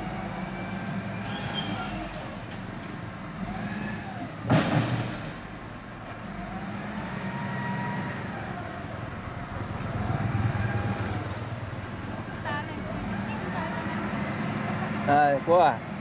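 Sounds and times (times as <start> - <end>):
heavy machine engines revving: 0.0 - 16.0
soil and stones crashing into truck bed: 4.4 - 5.6.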